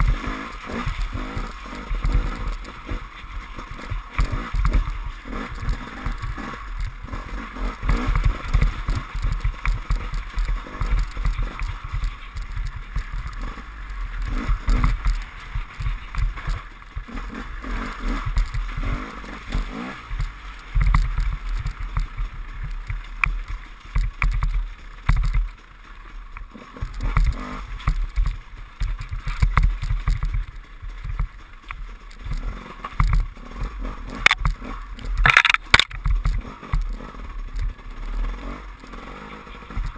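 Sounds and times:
motorcycle engine revving: 0.0s - 39.9s.

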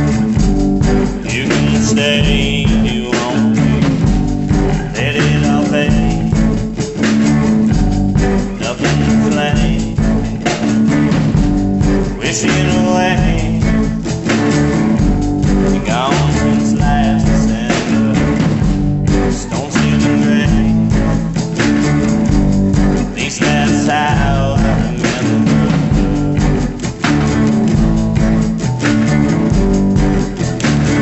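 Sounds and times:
rock band song: 0.0s - 31.0s.

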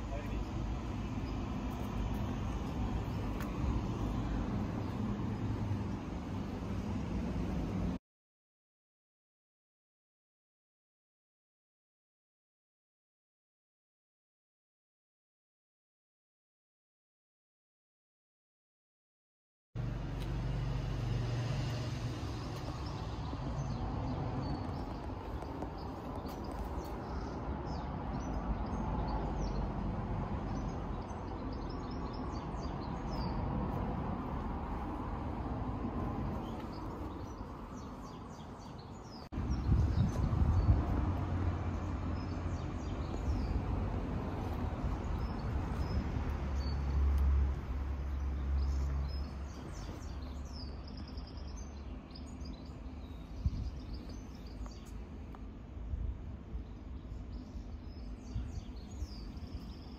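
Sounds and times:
steady low rumble: 19.8s - 51.8s.

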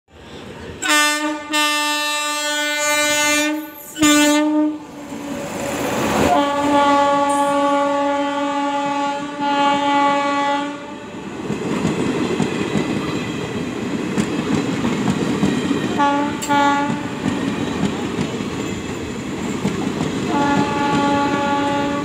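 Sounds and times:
locomotive horn blasts: 0.8s - 4.8s, 6.3s - 10.9s, 16.0s - 17.1s, 20.3s - 22.0s
train wheels clattering on rails: 11.3s - 22.0s.

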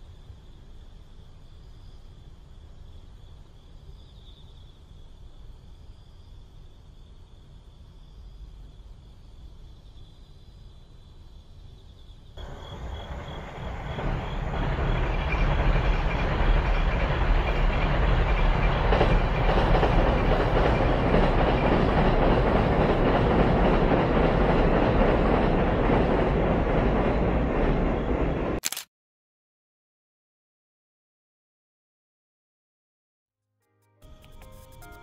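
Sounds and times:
train wheels rumbling on rails: 12.4s - 28.6s.

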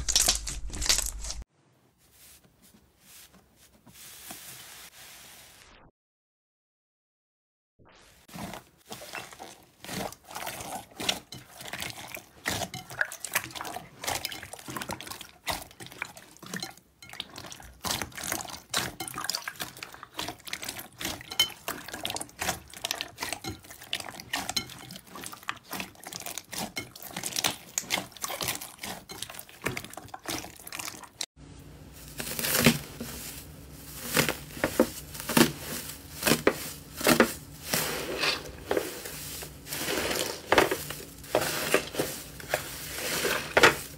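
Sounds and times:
foil-coated slime crinkling: 0.0s - 1.4s, 31.8s - 43.9s
slime squelching: 8.2s - 43.9s.

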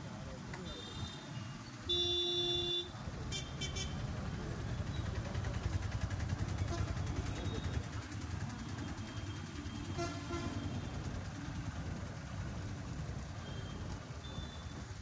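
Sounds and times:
traffic engines rumbling: 0.0s - 15.0s
wind: 0.0s - 15.0s
vehicle horn toot: 1.9s - 4.0s, 9.2s - 10.9s.

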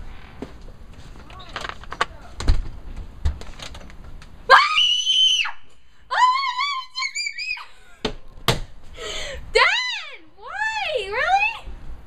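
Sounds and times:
girl screaming: 4.5s - 7.7s.

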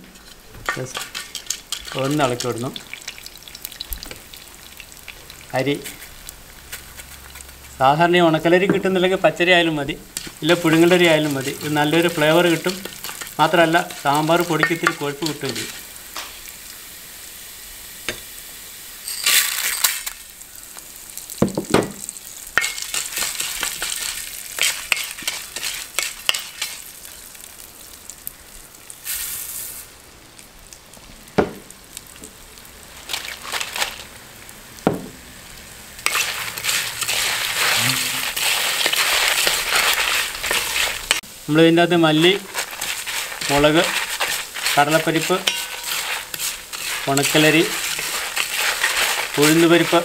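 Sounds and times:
wooden spoon scraping a pan: 0.0s - 3.2s, 10.1s - 15.9s, 22.6s - 26.9s, 36.0s - 41.2s, 41.9s - 50.0s
spices sizzling in a pan: 0.0s - 50.0s.

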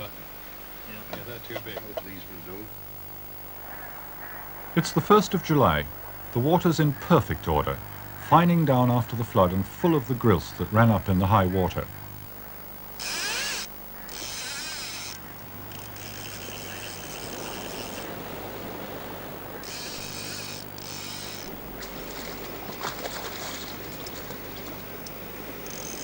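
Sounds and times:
fly reel ratchet buzzing: 12.1s - 18.1s, 19.6s - 21.6s, 25.6s - 26.0s
river water rushing: 14.4s - 26.0s.

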